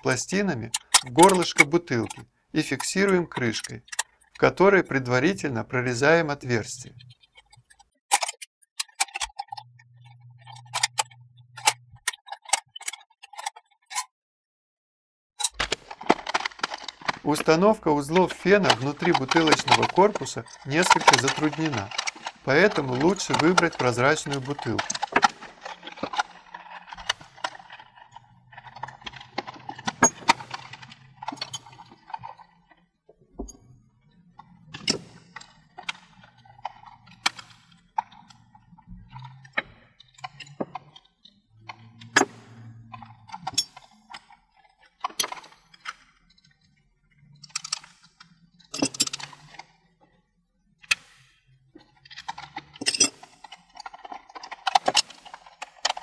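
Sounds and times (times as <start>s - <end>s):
tools clinking on plastic bottle: 15.4s - 32.4s, 52.1s - 56.0s.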